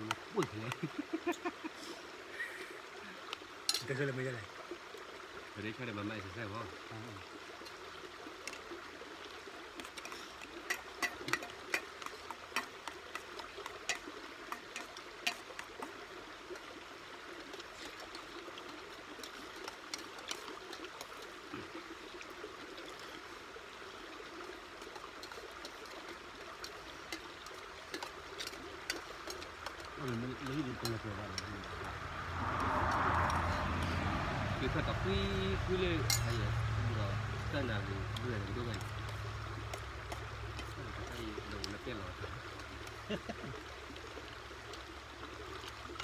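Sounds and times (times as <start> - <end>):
spoons clinking on steel bowls: 10.0 - 15.4, 27.9 - 31.6, 36.0 - 36.5.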